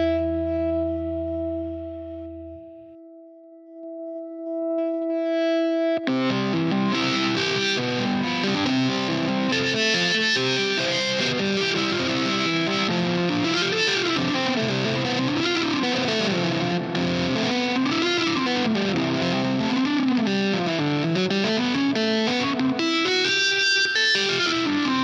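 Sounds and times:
distorted electric guitars: 0.0s - 2.9s, 3.8s - 25.0s
sliding pitched guitar line: 0.0s - 25.0s
indie rock music: 6.1s - 25.0s.

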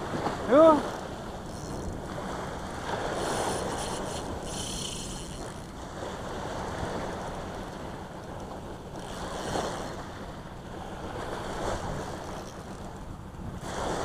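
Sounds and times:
small waves breaking on sand: 0.0s - 1.3s, 13.6s - 14.0s.

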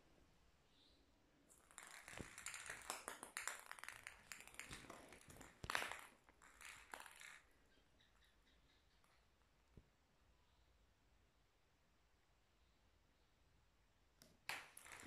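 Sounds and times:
plastic ball skittering on tiles: 1.5s - 8.3s, 14.2s - 15.0s.

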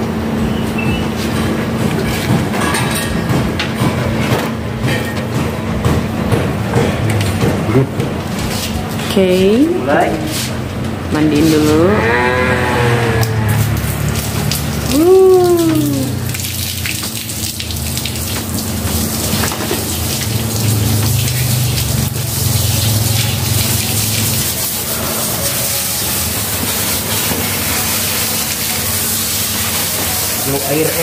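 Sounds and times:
dog howling: 11.7s - 13.8s, 14.9s - 16.3s
garden hose spraying water: 13.6s - 31.0s.

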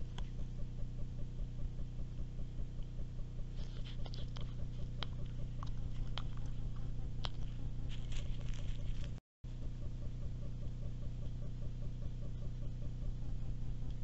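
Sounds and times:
low electronic hum: 0.0s - 14.0s
dry leaves crackling: 7.3s - 9.2s.

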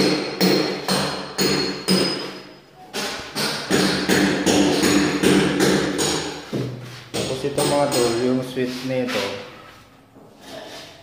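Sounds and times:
hammer striking chisel: 0.0s - 8.3s.

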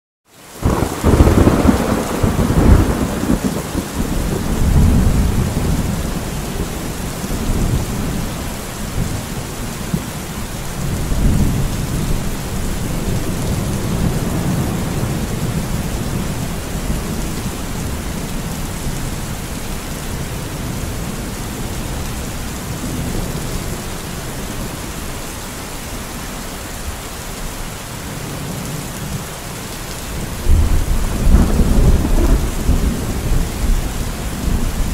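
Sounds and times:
heavy rain falling: 0.3s - 34.9s
rolling thunder: 0.6s - 10.1s, 30.1s - 34.9s.

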